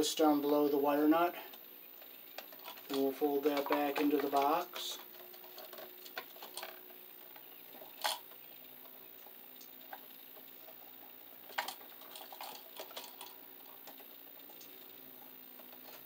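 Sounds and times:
wiring clicking in plastic box: 0:02.3 - 0:08.2.

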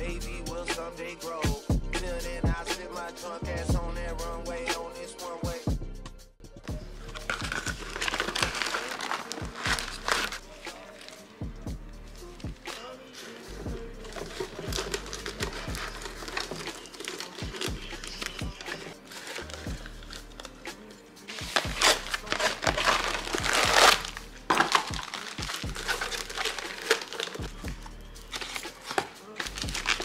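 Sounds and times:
plastic bags crinkling: 0:07.0 - 0:11.3, 0:12.5 - 0:20.6, 0:21.3 - 0:30.0.

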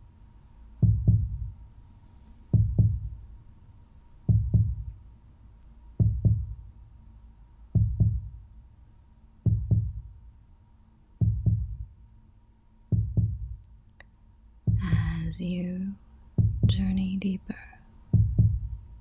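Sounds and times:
slow heartbeat thumps: 0:00.8 - 0:01.6, 0:02.5 - 0:03.3, 0:04.3 - 0:05.0, 0:06.0 - 0:06.7, 0:07.7 - 0:08.5, 0:09.4 - 0:10.2, 0:11.2 - 0:12.0, 0:12.9 - 0:13.6, 0:14.7 - 0:15.4, 0:16.3 - 0:17.0, 0:18.1 - 0:19.0.

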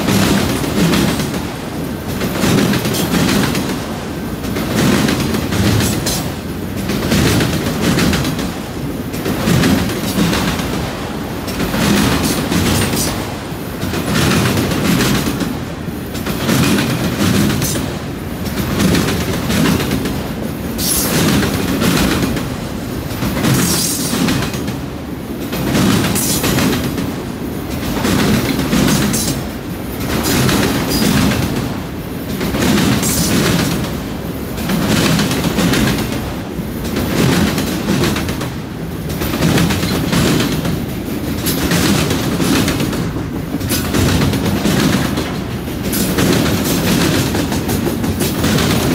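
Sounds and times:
train wheels clattering on track: 0:00.0 - 0:48.9.

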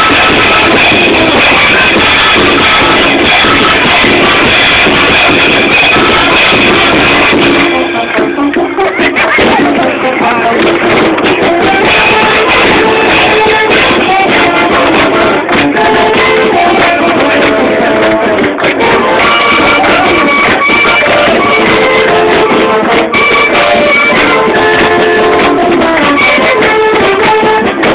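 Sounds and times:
loud music with held notes: 0:00.0 - 0:27.9.

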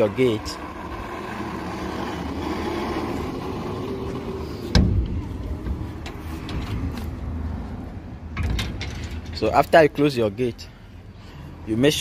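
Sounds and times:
metal gate clanking shut: 0:08.3 - 0:09.8.

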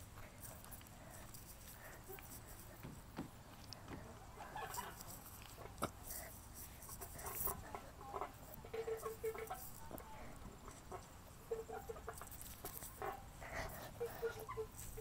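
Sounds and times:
hen clucking: 0:03.8 - 0:15.0.

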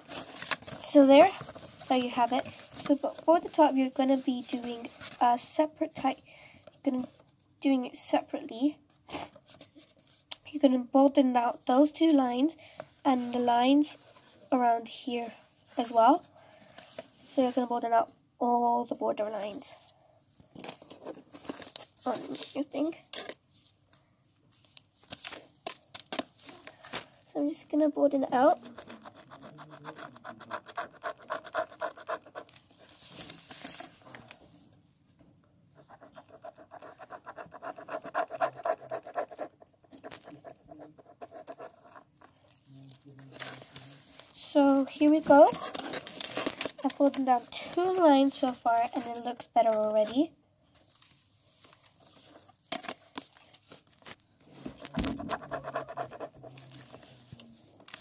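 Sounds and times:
pen scratching on paper: 0:28.4 - 0:32.8, 0:35.8 - 0:42.3, 0:54.9 - 0:57.1.

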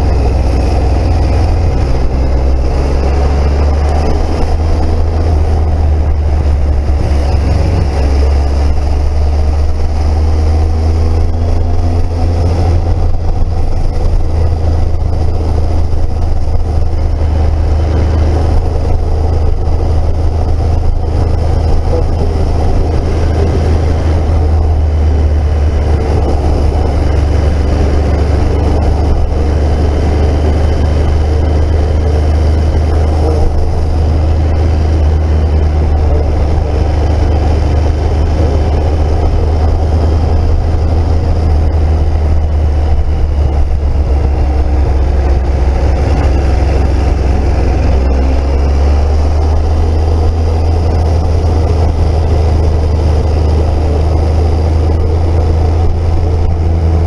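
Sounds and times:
motorcycle engine running: 0:00.0 - 0:57.0
wind rushing over microphone: 0:00.0 - 0:57.0.

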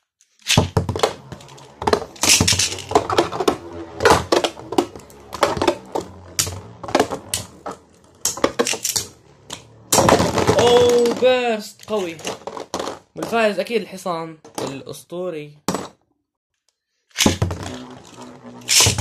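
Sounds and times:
spinning tops clacking: 0:00.4 - 0:11.2, 0:17.2 - 0:19.0.

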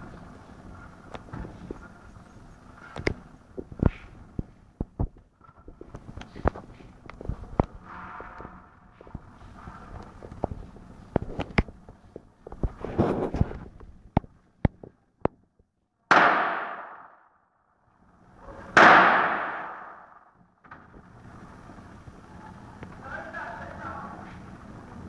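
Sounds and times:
loud echoing bangs: 0:16.1 - 0:17.3, 0:18.7 - 0:20.3
firecrackers cracking: 0:18.7 - 0:20.2.

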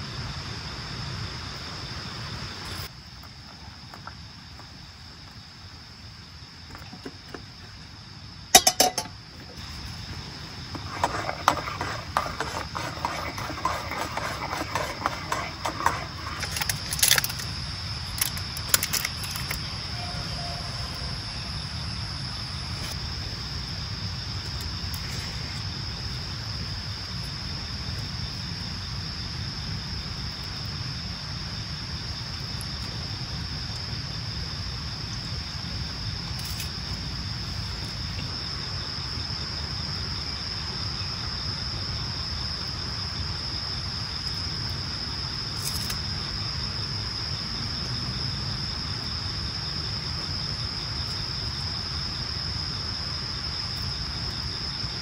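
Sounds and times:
crickets chirring: 0:00.0 - 0:55.0
spoon clinking in a metal mug: 0:08.6 - 0:09.1.

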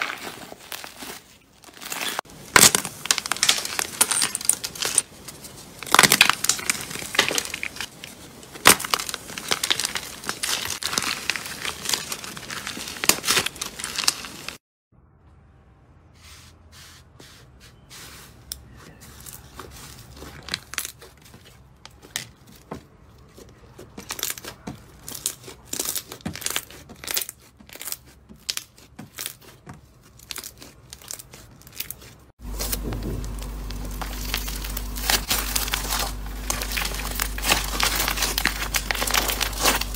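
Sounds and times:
bead-filled slime crunching: 0:00.0 - 0:14.6, 0:18.9 - 0:39.9
slime crackling and popping: 0:05.8 - 0:14.6, 0:30.2 - 0:39.9.

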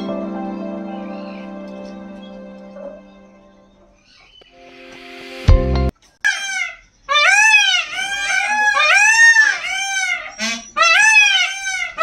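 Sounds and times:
peafowl calling: 0:06.2 - 0:12.0.

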